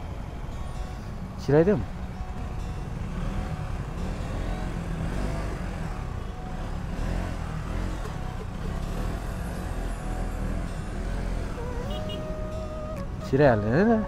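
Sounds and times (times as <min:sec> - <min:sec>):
traffic engines: 0:00.0 - 0:14.0
motorcycle engine running: 0:02.2 - 0:13.3.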